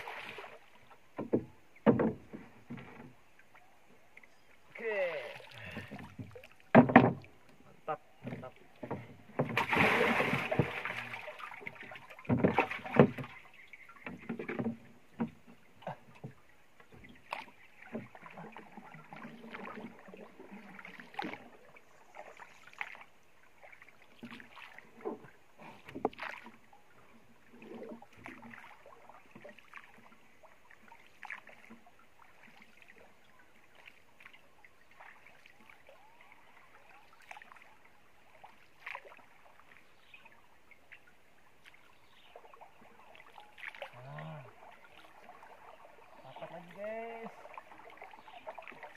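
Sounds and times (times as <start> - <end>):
paddle strokes and splashes: 0.0 - 48.9
water splashing beside boat: 0.0 - 48.9
knocks on wooden boat: 1.2 - 3.1, 5.9 - 7.3, 12.3 - 13.3.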